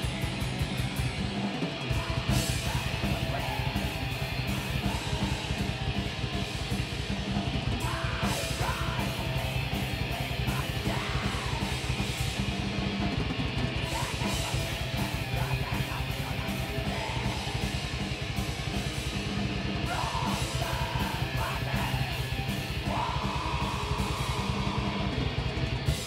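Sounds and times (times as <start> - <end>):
distorted electric guitars: 0.0 - 26.0
drum kit: 0.0 - 26.0.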